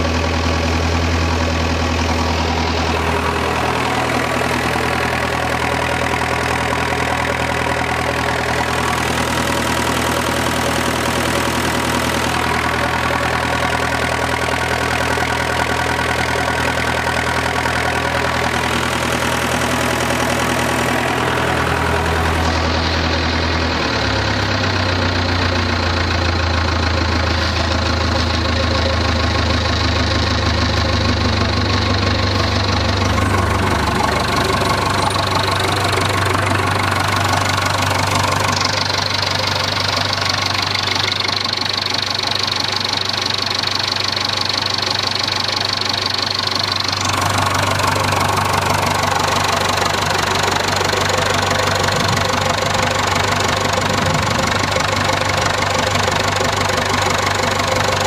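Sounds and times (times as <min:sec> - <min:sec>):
tractor diesel engine idling: 0:00.0 - 0:58.0.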